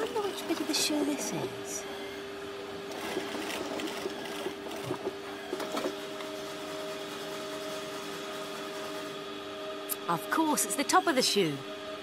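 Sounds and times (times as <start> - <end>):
sewing machine motor hum: 2.6 - 9.5.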